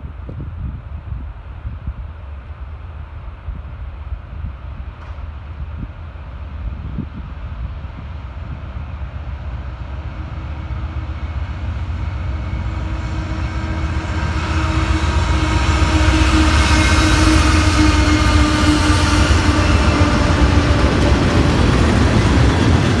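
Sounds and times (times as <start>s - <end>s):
steel wheels on rail: 8.4s - 23.0s.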